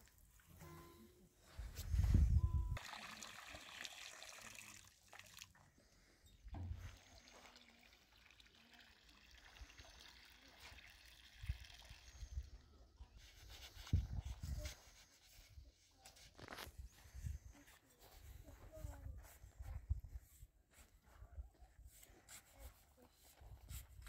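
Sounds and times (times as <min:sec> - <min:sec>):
water trickling and pouring: 0:02.8 - 0:05.9, 0:06.5 - 0:12.6.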